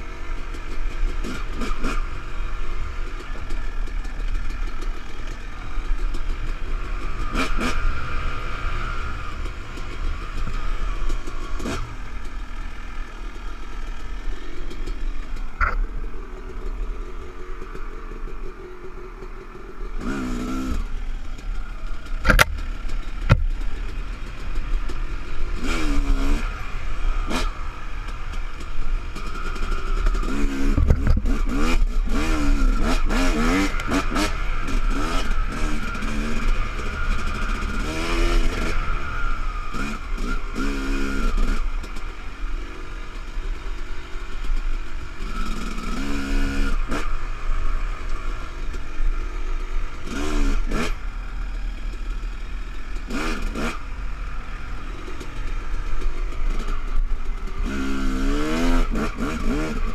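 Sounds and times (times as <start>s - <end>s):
dirt bike engine revving: 0.0s - 59.9s
bike knocks and rattles: 22.2s - 23.8s, 30.7s - 31.6s.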